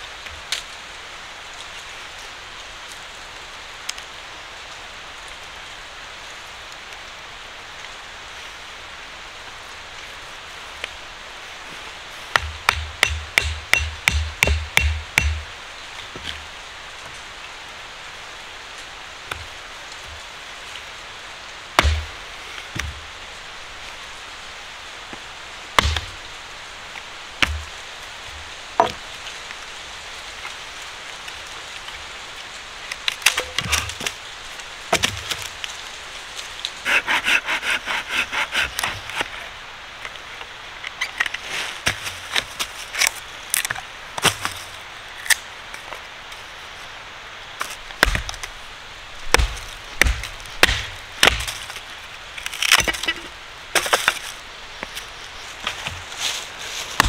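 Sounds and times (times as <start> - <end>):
sharp wooden knocks: 12.3 - 15.5, 21.8 - 22.1, 25.8 - 26.1, 27.4 - 27.7, 28.8 - 29.0, 48.0 - 48.4, 49.3 - 51.6
rasping wood shaving strokes: 36.8 - 39.5, 49.3 - 51.8.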